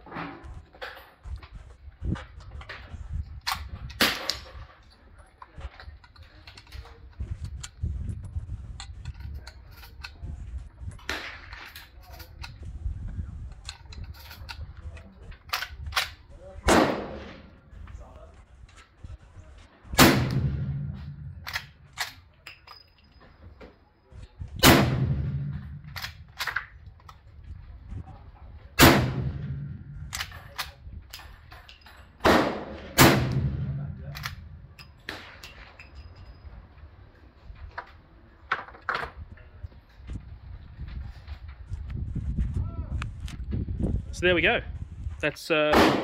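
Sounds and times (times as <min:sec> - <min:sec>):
rifle shots ringing out: 0:16.7 - 0:17.5, 0:20.0 - 0:22.2, 0:24.6 - 0:26.5, 0:28.8 - 0:30.4, 0:32.2 - 0:35.4, 0:45.7 - 0:46.0.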